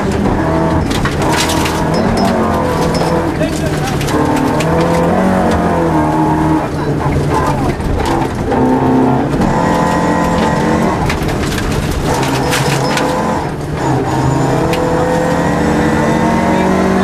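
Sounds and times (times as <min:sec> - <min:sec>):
rally car engine working hard: 0:00.0 - 0:17.0.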